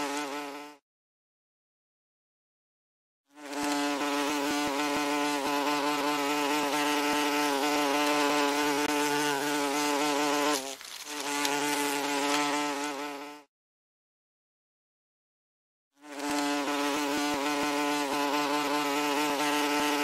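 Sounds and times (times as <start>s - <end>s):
wasp buzzing: 0.0s - 0.8s, 3.3s - 13.5s, 16.0s - 20.0s.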